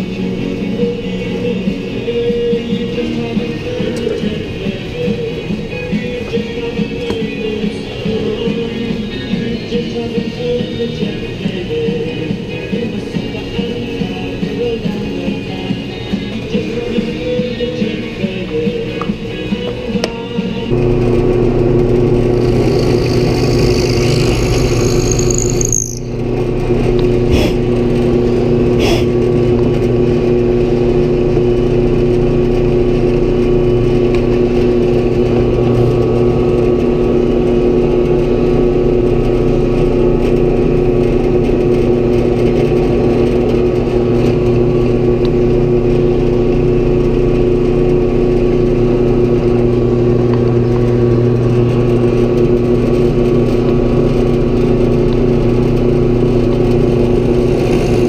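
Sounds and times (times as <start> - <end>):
drill press motor humming: 20.7 - 58.0.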